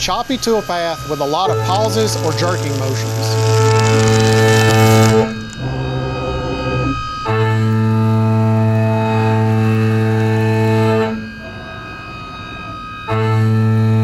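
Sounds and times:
milling cutter drone: 0:00.4 - 0:07.1.

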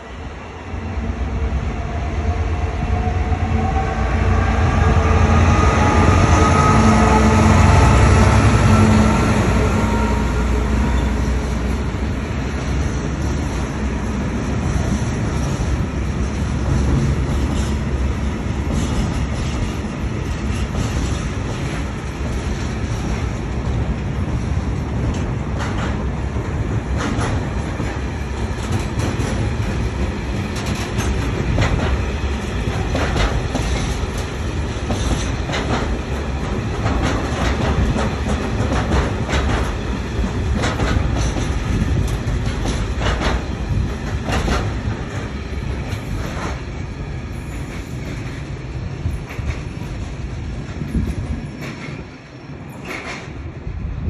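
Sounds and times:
freight train rumbling: 0:00.0 - 0:54.0
wheels clacking over rail joints: 0:25.0 - 0:46.6.

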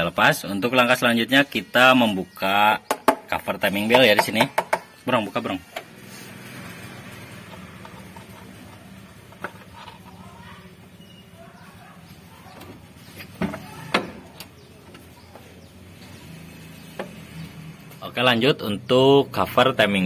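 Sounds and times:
metallic clicks and knocks: 0:02.8 - 0:05.0.

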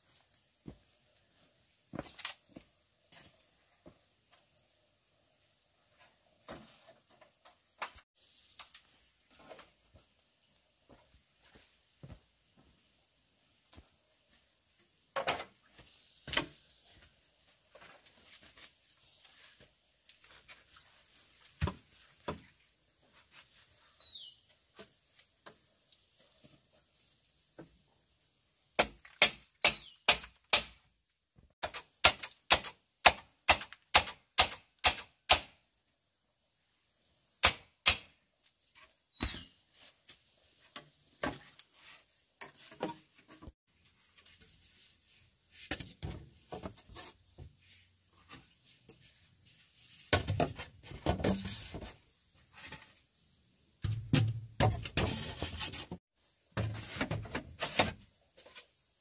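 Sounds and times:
tool striking wood: 0:28.8 - 0:30.8, 0:37.4 - 0:38.1.

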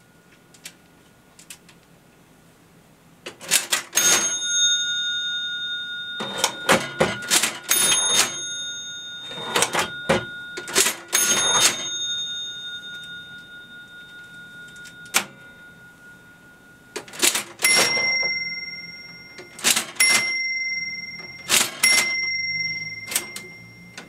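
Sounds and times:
cash register keys clacking: 0:03.3 - 0:05.4, 0:06.0 - 0:15.7, 0:16.9 - 0:24.0
cash register crank turning: 0:03.3 - 0:05.5, 0:06.1 - 0:13.6, 0:14.2 - 0:15.4, 0:17.0 - 0:24.0
cash register bell ringing: 0:03.3 - 0:24.0.

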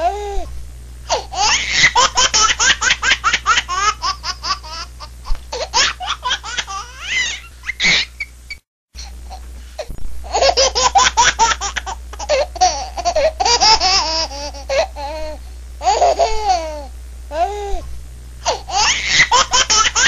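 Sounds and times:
high-pitched laughter: 0:01.4 - 0:04.9, 0:05.8 - 0:08.3, 0:18.7 - 0:20.0.

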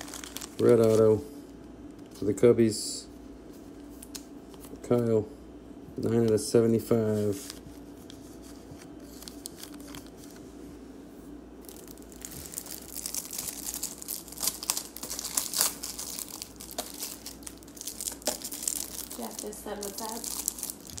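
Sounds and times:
plastic packaging crinkling and tearing: 0:00.0 - 0:01.2, 0:08.6 - 0:10.4, 0:11.6 - 0:21.0.

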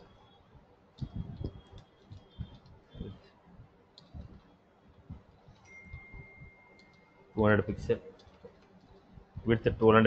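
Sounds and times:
faint steady high tone: 0:00.0 - 0:03.2, 0:05.5 - 0:08.2
faint keyboard keystrokes: 0:01.0 - 0:03.2, 0:03.9 - 0:04.5, 0:05.1 - 0:07.1, 0:08.1 - 0:09.1.

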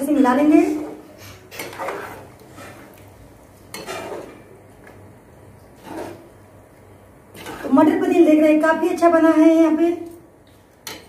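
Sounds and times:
metal ladle scraping a pan: 0:00.5 - 0:03.0, 0:03.7 - 0:04.5, 0:05.8 - 0:06.4, 0:07.3 - 0:08.0.

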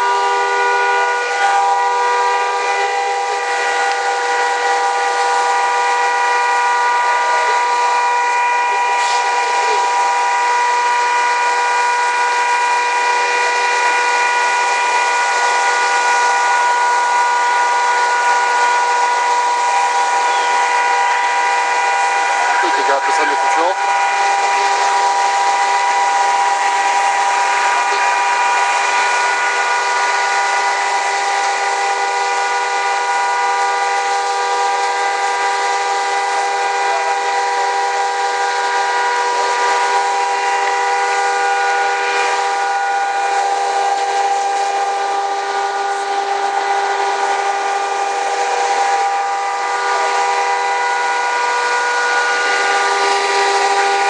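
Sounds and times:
whistling whining tones: 0:00.0 - 0:54.0
loud steady hiss: 0:00.2 - 0:51.6.

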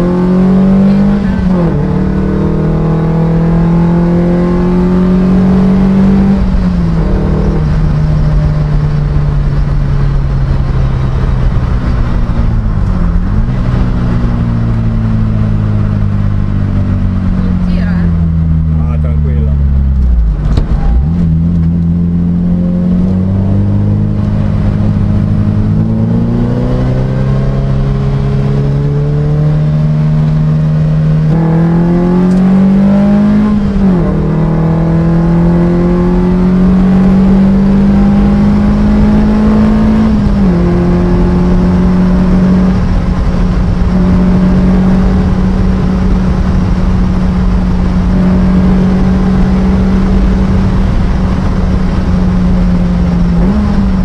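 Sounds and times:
racing car engine running loudly: 0:00.0 - 0:54.0.

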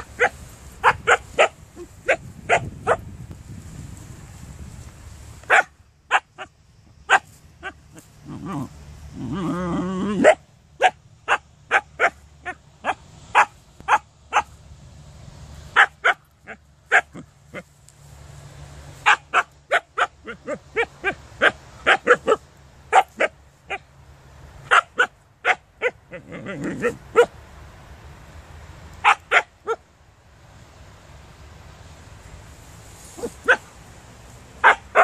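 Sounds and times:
dog barking: 0:00.0 - 0:03.0, 0:05.5 - 0:06.5, 0:10.2 - 0:14.5, 0:15.8 - 0:17.2, 0:19.0 - 0:23.8, 0:24.7 - 0:26.0, 0:26.7 - 0:27.3, 0:29.0 - 0:29.8, 0:33.2 - 0:33.7, 0:34.6 - 0:35.0.

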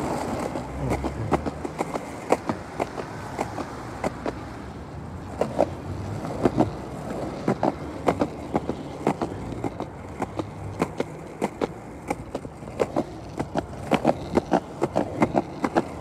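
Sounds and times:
skateboard clicks and knocks: 0:00.0 - 0:16.0
skateboard wheels rolling on pavement: 0:00.0 - 0:16.0.

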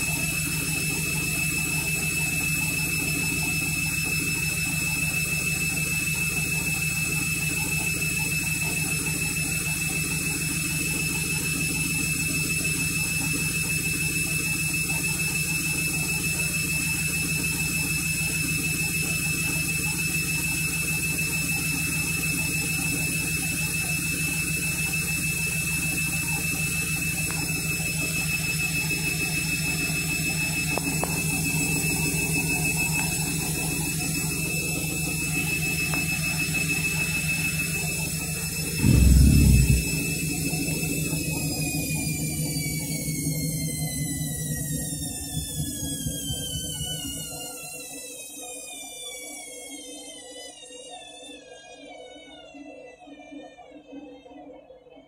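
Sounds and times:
high-pitched whine: 0:38.8 - 0:40.5.

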